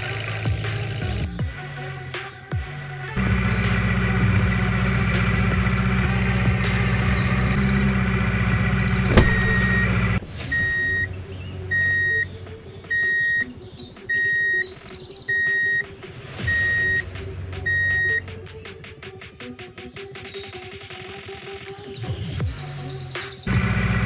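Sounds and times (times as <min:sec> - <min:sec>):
high reversing beeps: 0:10.5 - 0:12.3, 0:12.9 - 0:13.5, 0:14.1 - 0:18.3.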